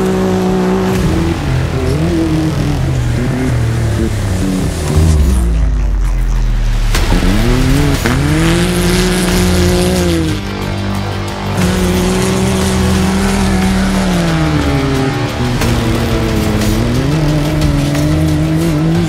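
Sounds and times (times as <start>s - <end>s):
engine revving hard: 0.0s - 19.0s.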